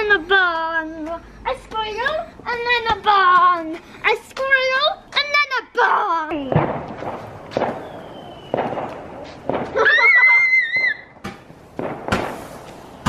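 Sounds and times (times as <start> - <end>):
firework fizzing: 6.5 - 13.0
rocket firework launching: 6.5 - 13.0.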